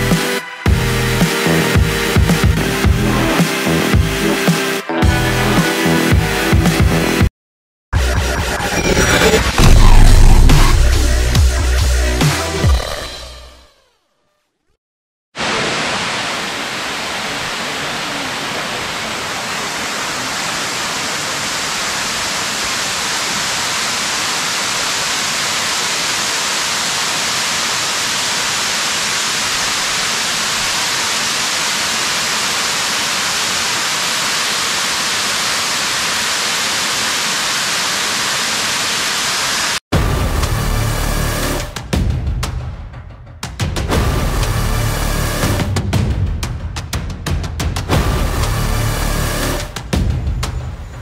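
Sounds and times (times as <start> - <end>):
waterfall rushing: 15.4 - 39.8.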